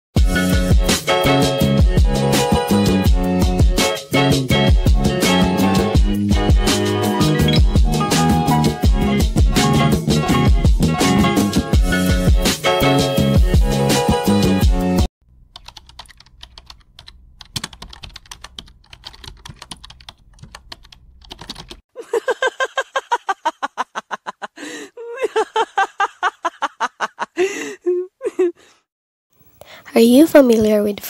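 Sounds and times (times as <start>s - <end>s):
keyboard typing: 15.4s - 21.8s
loud rhythmic laughter: 22.0s - 28.6s.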